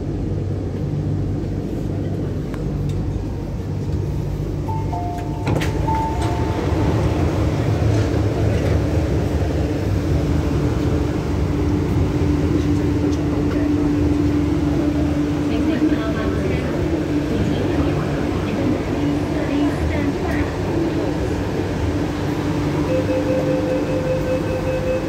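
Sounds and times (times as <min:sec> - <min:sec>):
electric train rumble: 0:00.0 - 0:25.0.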